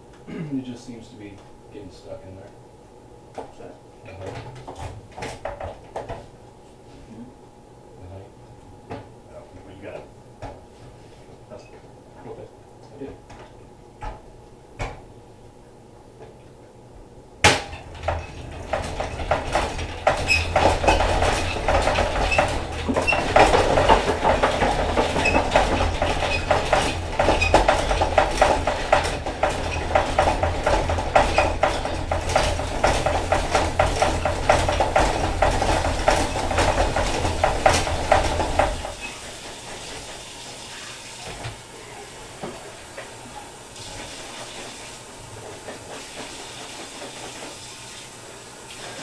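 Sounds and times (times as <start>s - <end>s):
honey extractor rumbling and rattling: 17.2s - 40.4s, 41.2s - 49.0s.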